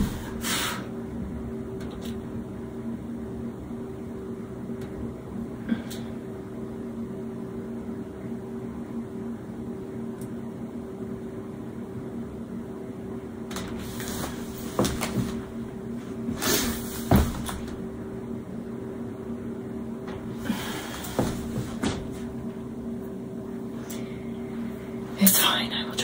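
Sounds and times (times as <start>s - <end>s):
appliance electrical hum: 0.0s - 26.0s
clothing rustling: 13.7s - 17.8s, 20.1s - 22.5s.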